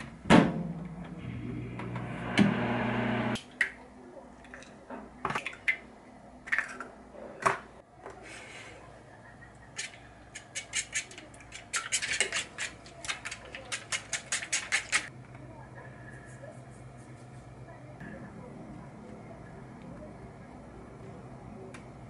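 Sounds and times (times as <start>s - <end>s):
fork beating eggs in metal tray: 9.8s - 15.1s.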